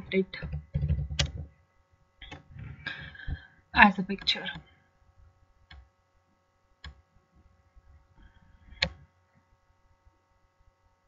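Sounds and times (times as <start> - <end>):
faint electrical hum: 0.0 - 11.0
computer mouse clicks: 0.4 - 1.5, 5.7 - 5.9, 8.8 - 9.0.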